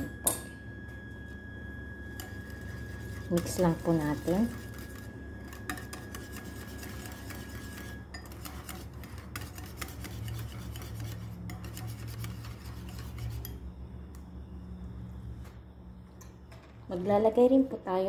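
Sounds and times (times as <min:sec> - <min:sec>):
wire whisk beating in a bowl: 0:02.2 - 0:13.6.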